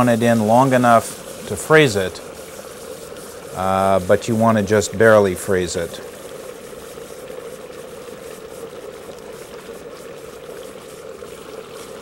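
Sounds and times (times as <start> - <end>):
liquid nitrogen boiling: 0.0 - 12.0.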